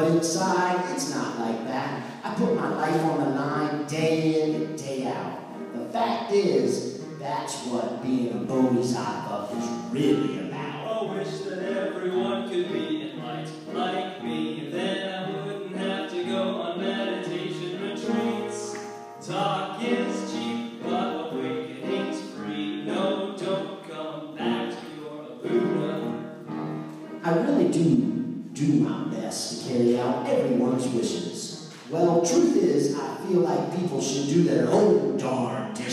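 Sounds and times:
music with singing: 9.3 - 27.7.

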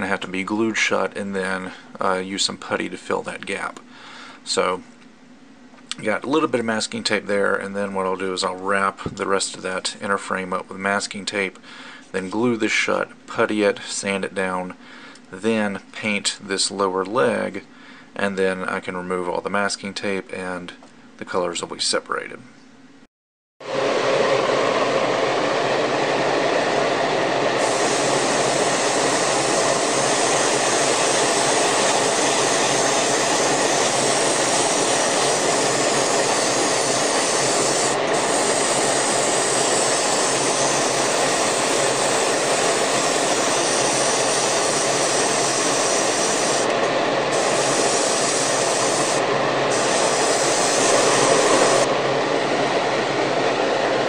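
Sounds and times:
faint fan hum: 0.0 - 23.1
exhaust fan rushing air: 23.6 - 54.0.

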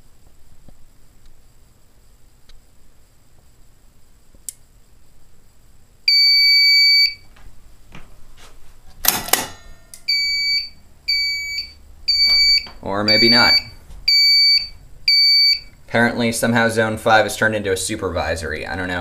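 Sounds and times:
fire alarm panel beeping: 6.1 - 7.2, 10.0 - 15.8.

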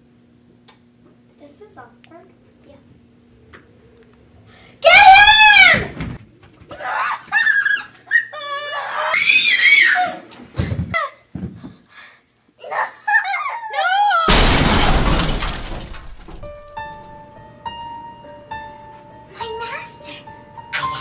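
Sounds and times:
children yelling and screaming: 4.8 - 6.0, 6.7 - 10.3.

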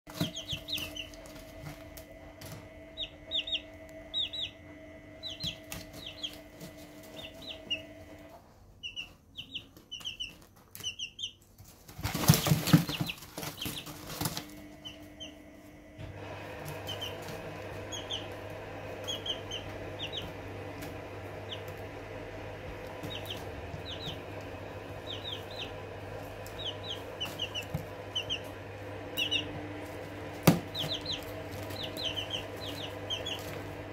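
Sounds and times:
steady hum: 0.1 - 8.6, 12.0 - 33.9
chicks peeping: 0.1 - 33.9
wing flapping: 11.7 - 15.0.

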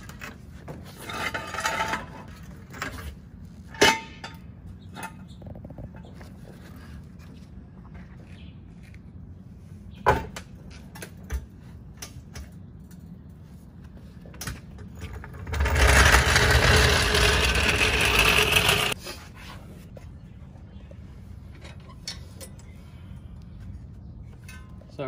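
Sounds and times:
floor jack clanking: 15.0 - 19.0
impact wrench running: 15.5 - 19.0.

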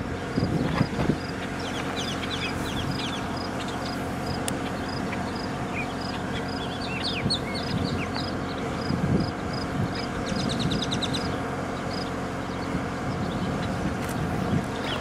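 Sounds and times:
small birds chirping: 0.0 - 15.0
steady low hum: 0.0 - 15.0.

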